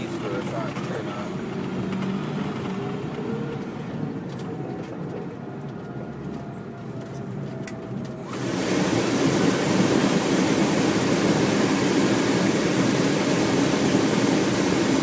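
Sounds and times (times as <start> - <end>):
truck engine and road drone: 0.0 - 15.0.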